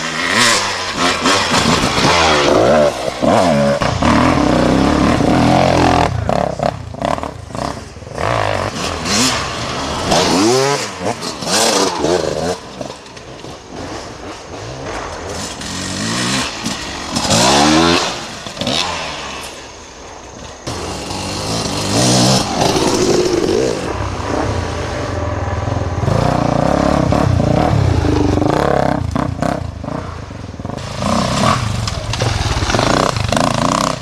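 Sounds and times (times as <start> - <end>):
dirt bike engines revving: 0.0 - 34.0.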